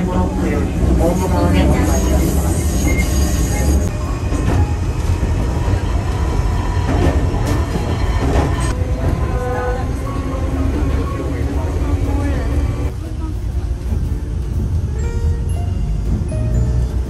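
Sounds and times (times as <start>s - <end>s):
train rumbling on rails: 0.0s - 17.0s
high wheel squeal: 1.8s - 3.9s.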